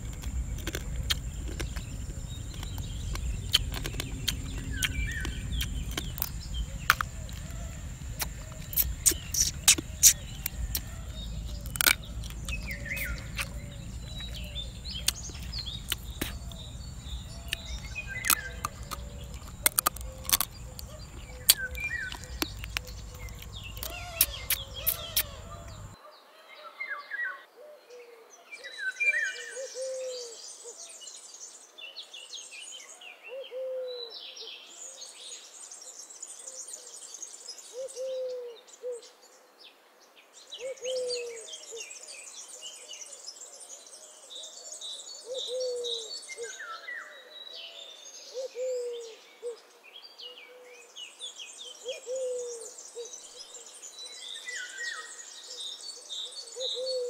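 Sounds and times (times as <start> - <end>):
sharp clicks: 0.0 - 25.9
bird chirps and trills: 0.0 - 26.0, 51.6 - 57.0
wind rumble on microphone: 0.0 - 26.0
bird hooting call: 3.8 - 26.0, 29.3 - 30.8, 33.3 - 34.1, 37.8 - 39.0, 45.3 - 46.6, 48.3 - 49.6, 51.8 - 53.1, 56.5 - 57.0.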